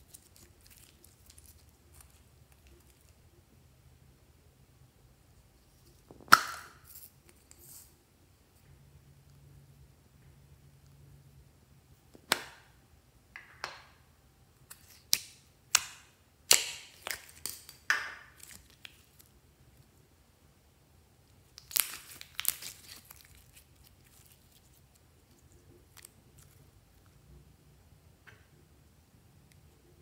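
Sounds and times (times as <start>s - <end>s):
slime crackling and popping: 21.4s - 26.6s.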